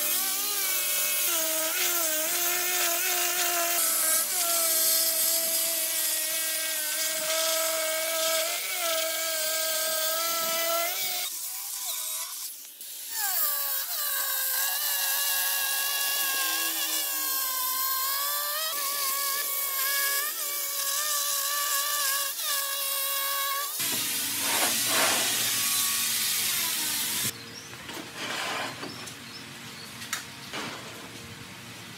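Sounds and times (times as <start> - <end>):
electric saw cutting stone: 0.0 - 27.4
broad hiss: 23.8 - 27.3.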